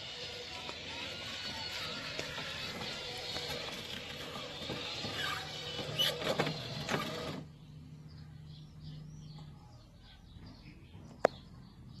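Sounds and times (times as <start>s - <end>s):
robotic lawn mower running: 0.0s - 7.6s
birds chirping faintly: 7.4s - 12.0s.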